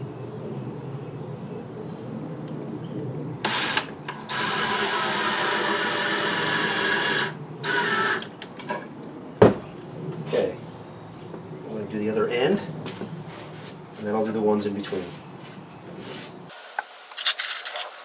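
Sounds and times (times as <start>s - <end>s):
cordless drill driving screw: 3.4s - 8.3s.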